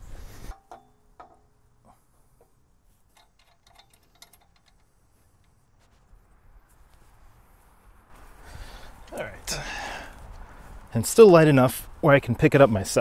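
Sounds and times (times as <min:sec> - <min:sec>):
metal parts clinking: 0:03.1 - 0:05.0.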